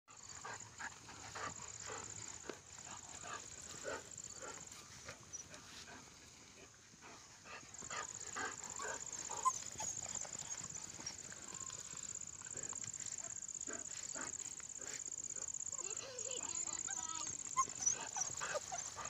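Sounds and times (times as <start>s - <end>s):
dogs barking and yipping: 7.7s - 15.1s, 15.8s - 19.0s.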